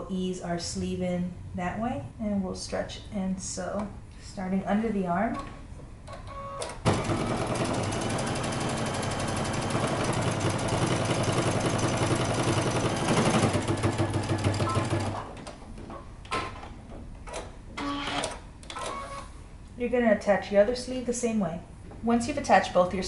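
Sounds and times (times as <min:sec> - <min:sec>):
sewing machine stitching: 0:06.9 - 0:15.4.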